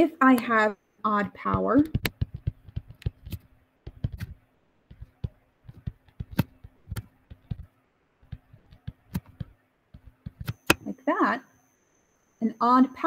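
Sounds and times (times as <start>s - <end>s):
faint electrical hum: 0.0s - 13.0s
stylus tapping on touchscreen: 1.2s - 10.9s.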